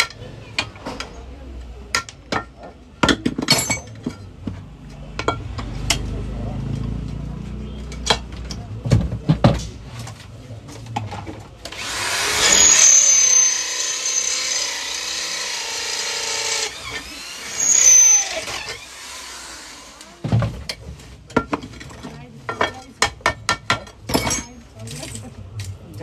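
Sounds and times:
electric drill boring into metal: 11.7s - 20.1s.

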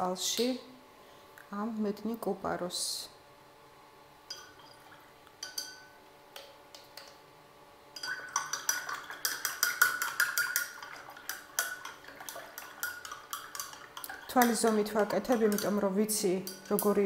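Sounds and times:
stick clinking against glass: 5.4s - 5.9s.

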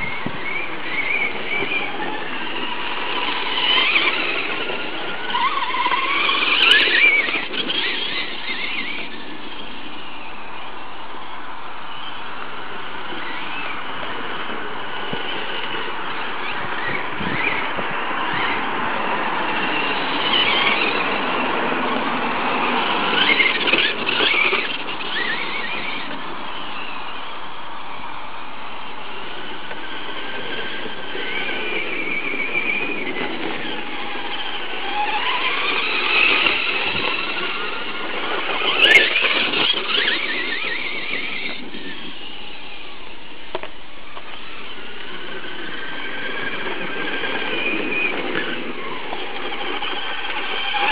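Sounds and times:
rc truck motors whining: 0.0s - 50.9s.

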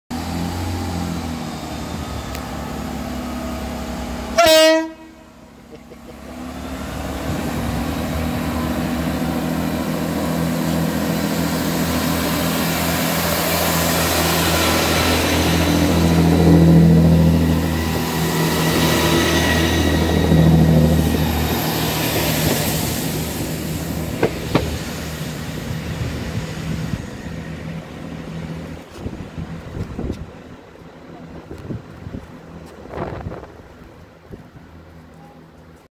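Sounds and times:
diesel train engine droning: 0.1s - 35.9s
train horn blast: 4.3s - 5.4s.

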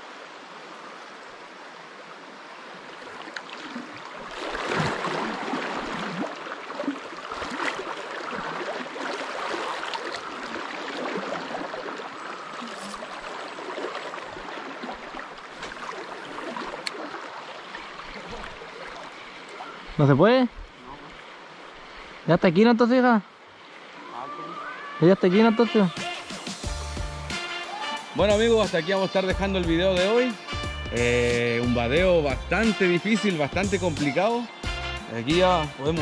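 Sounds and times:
river water flowing: 0.0s - 36.0s
wading splashes in water: 2.2s - 22.3s.

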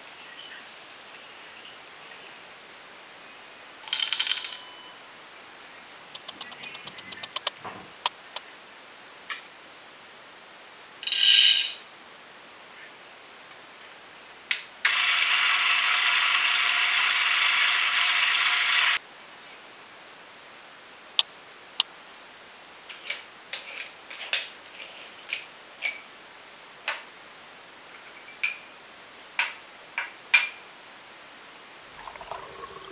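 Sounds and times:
coffee beans rattling into hopper: 3.8s - 4.6s, 11.0s - 11.8s
coffee grinder motor grinding: 14.9s - 19.0s.

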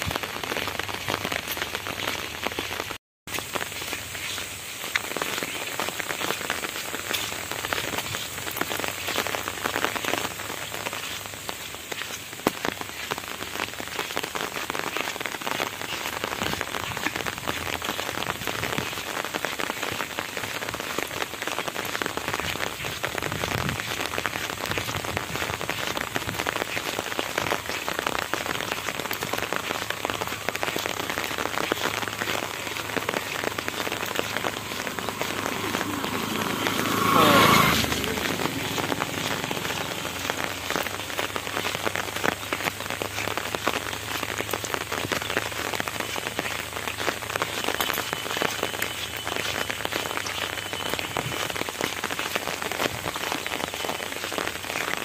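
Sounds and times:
rain on an umbrella: 0.0s - 55.0s.

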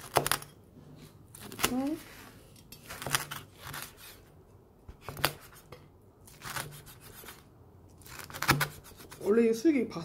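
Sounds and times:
cleaver chopping crisp meat: 8.0s - 9.3s.

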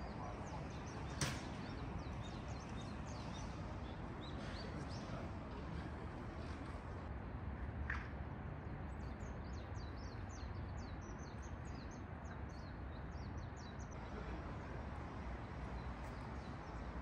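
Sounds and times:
small birds chirping: 0.0s - 7.1s, 9.0s - 14.7s.

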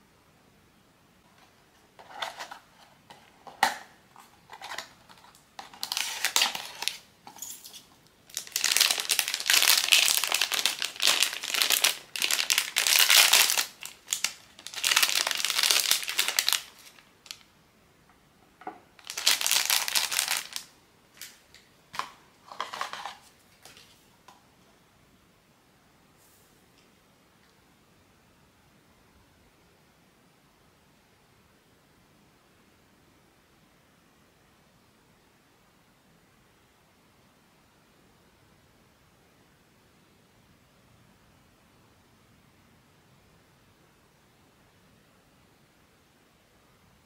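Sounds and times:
crinkly wrapper crumpling: 2.0s - 17.5s, 19.0s - 24.0s.

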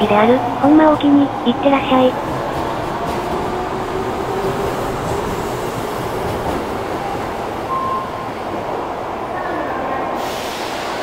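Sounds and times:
subway train wheels rumbling: 0.0s - 11.0s.

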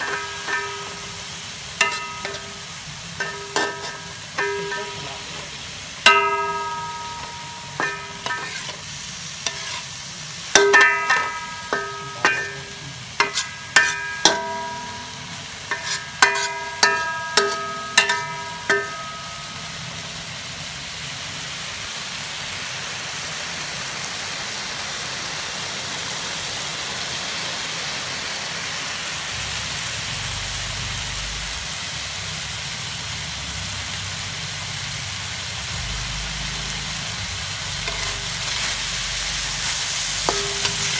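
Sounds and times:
metal spatula knocking on wok: 0.0s - 1.2s, 1.8s - 5.1s, 6.0s - 8.8s, 10.5s - 19.6s, 37.8s - 38.7s, 40.2s - 40.9s
meat sizzling in wok: 0.0s - 40.9s.

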